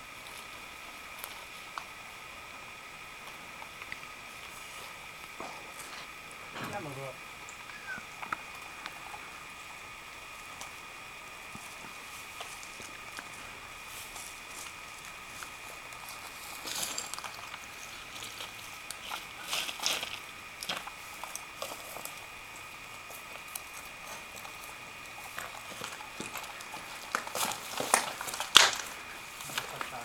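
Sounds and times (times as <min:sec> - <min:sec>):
faint steady high tone: 0:06.6 - 0:08.2
footsteps through grass and stones: 0:11.2 - 0:30.0.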